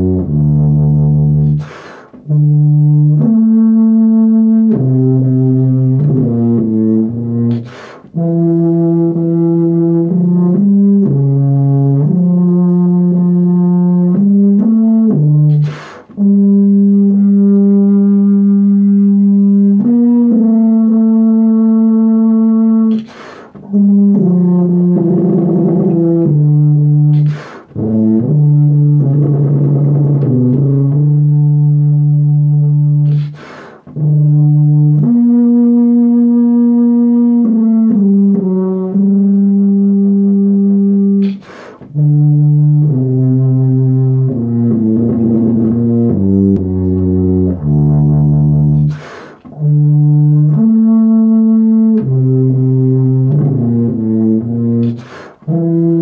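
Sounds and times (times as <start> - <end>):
tuba playing slow melody: 0.0 - 56.0
quick breaths: 1.6 - 2.2, 7.6 - 8.2, 15.6 - 16.2, 22.9 - 23.6, 27.2 - 27.8, 33.1 - 33.9, 41.3 - 41.9, 48.9 - 49.5, 55.0 - 55.5.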